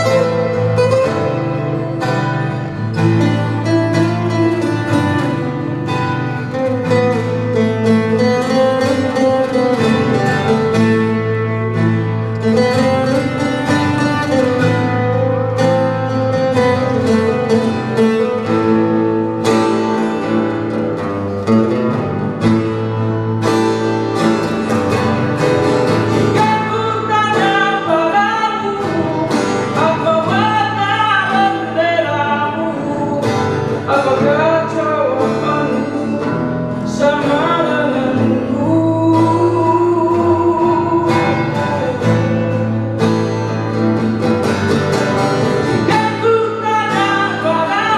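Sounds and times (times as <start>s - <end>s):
acoustic guitars playing: 0.0s - 47.9s
person singing: 25.9s - 43.3s, 45.5s - 47.9s.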